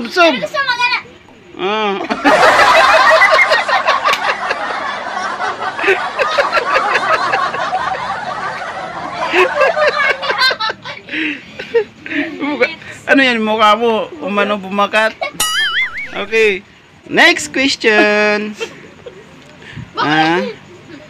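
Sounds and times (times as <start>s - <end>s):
children and woman laughing: 1.8s - 12.4s, 17.8s - 19.6s.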